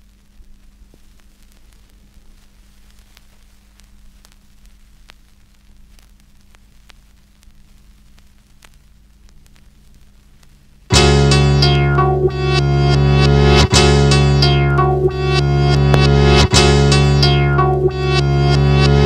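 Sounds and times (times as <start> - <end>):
record surface clicks and crackles: 0.0 - 19.0
steady hiss and mains hum: 0.0 - 19.0.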